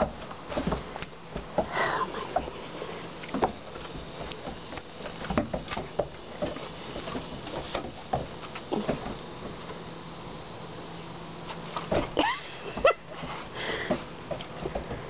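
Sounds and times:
puppy scuffling on wooden deck: 0.0s - 9.8s.

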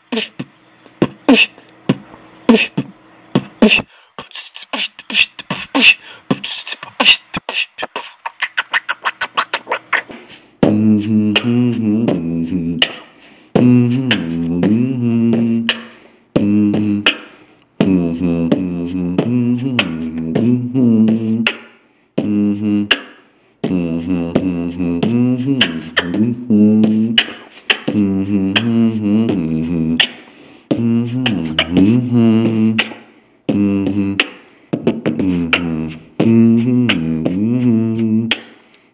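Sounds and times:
beatboxing mouth clicks: 0.0s - 38.9s
hummed bass line: 10.6s - 13.0s, 13.6s - 15.8s, 16.4s - 17.2s, 17.8s - 21.5s, 22.2s - 22.9s, 23.6s - 27.3s, 27.9s - 30.1s, 30.7s - 32.9s, 33.5s - 34.2s, 34.8s - 38.4s.

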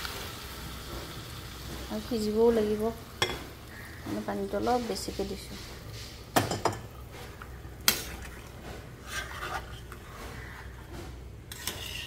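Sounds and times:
ladle stirring liquid in pot: 6.7s - 12.0s.

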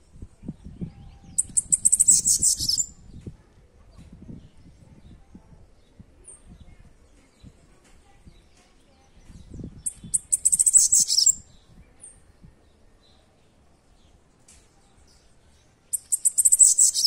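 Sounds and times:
bird buzzy song: 0.0s - 17.0s
bird chip notes: 9.9s - 11.4s, 16.0s - 17.0s.

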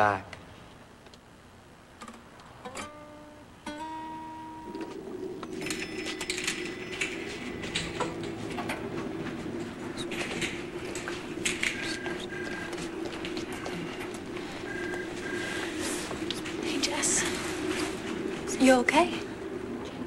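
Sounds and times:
steady low hum: 0.2s - 20.0s
acoustic guitar plucked: 2.0s - 10.1s.

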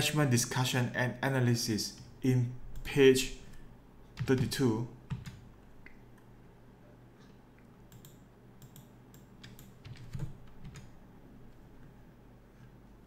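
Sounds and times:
keyboard and mouse clicks: 7.9s - 11.0s.

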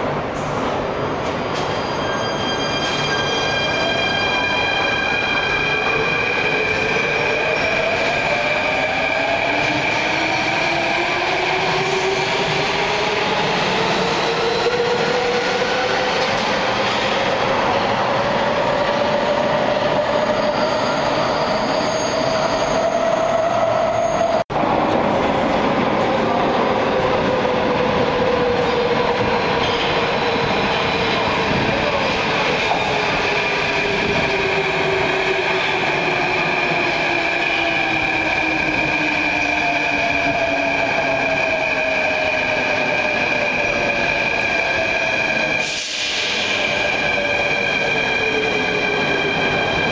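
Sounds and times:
rail noise: 0.0s - 49.9s
train brakes squealing: 1.3s - 8.1s, 19.9s - 24.4s, 44.8s - 49.8s.

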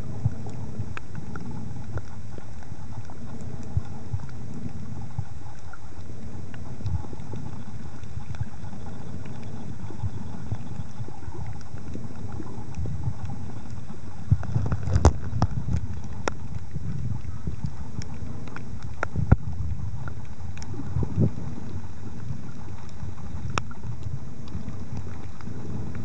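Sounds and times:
muffled underwater rumble: 0.0s - 26.0s.

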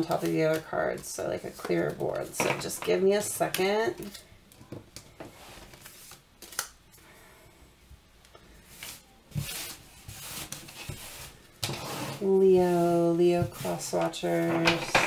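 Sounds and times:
cards sliding and rustling: 5.2s - 6.7s, 8.7s - 12.8s.

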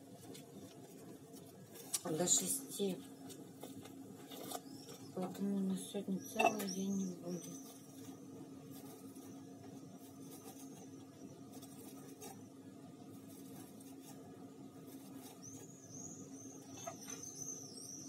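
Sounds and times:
steady low hum: 0.0s - 18.0s
high chirp-like squeaks: 6.2s - 8.0s, 15.2s - 18.0s.

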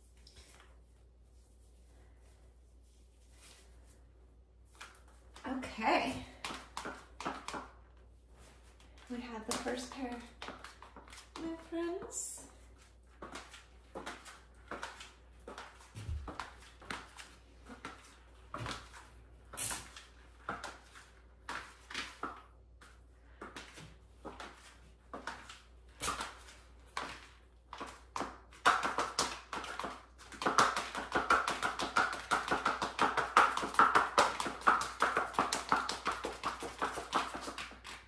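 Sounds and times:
high heels clicking on tiles: 5.3s - 7.8s, 8.9s - 19.0s, 19.6s - 38.0s
fast small taps: 6.4s - 7.8s, 27.7s - 38.0s.

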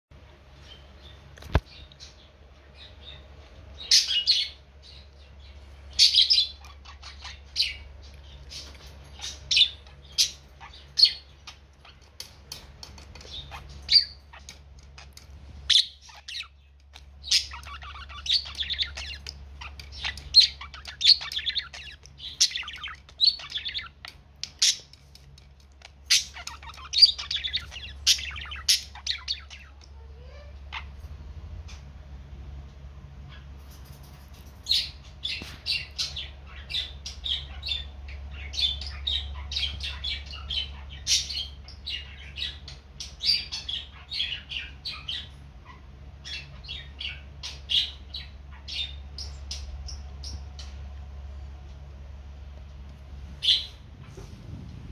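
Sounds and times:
budgerigar chirping and warbling: 5.9s - 7.9s, 13.2s - 14.6s, 17.2s - 24.9s, 26.0s - 31.0s, 34.8s - 50.4s.

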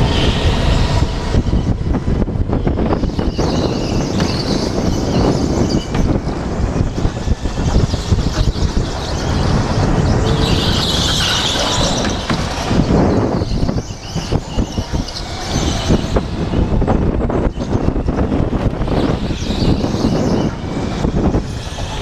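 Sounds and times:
go-kart engine rumble: 0.0s - 22.0s
wind buffeting microphone: 0.0s - 22.0s
tyre squeal: 2.8s - 16.8s, 18.8s - 22.0s.

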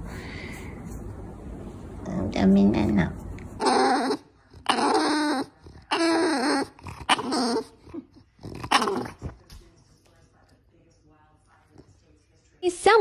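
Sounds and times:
dog vocalizing: 3.6s - 9.4s.

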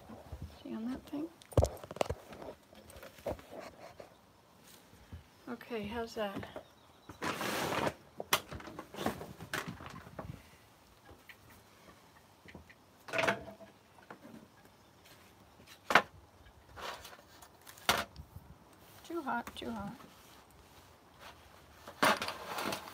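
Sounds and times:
short scrape on table: 7.2s - 8.0s.

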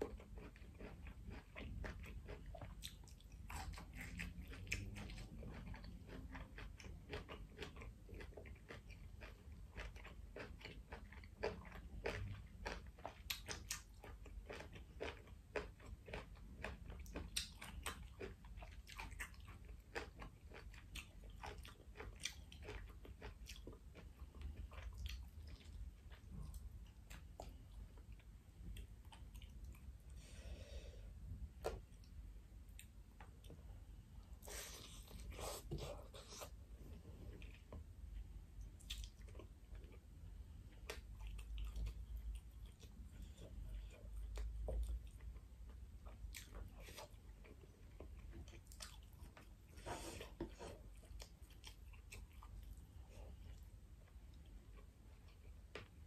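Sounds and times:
wet chewing clicks and smacks: 0.0s - 30.0s, 38.6s - 49.6s, 50.5s - 56.0s.

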